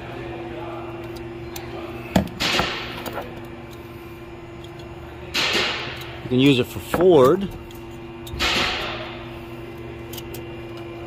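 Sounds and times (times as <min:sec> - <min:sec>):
steady hum: 0:00.0 - 0:11.0.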